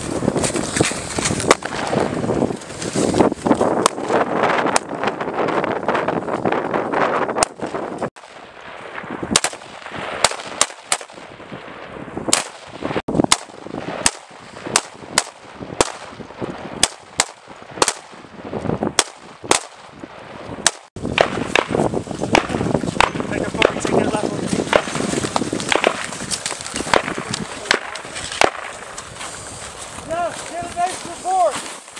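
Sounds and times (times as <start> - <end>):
rifle single shots: 1.5 - 2.0, 7.4 - 11.4, 12.3 - 16.2, 16.8 - 18.2, 19.0 - 20.0, 20.6 - 24.0, 25.7 - 26.1, 26.9 - 28.8.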